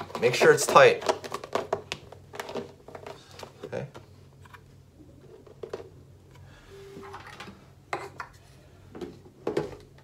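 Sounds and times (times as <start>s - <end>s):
plastic tubs knocking on table: 0.0s - 3.2s.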